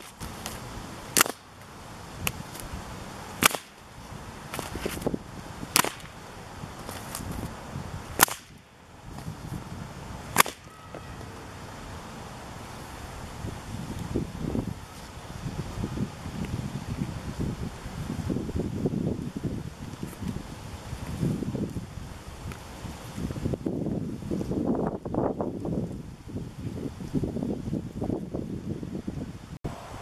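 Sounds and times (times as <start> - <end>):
whip cracking: 0.0 - 1.4, 3.4 - 3.8, 5.7 - 6.2, 8.2 - 8.7, 10.3 - 10.8.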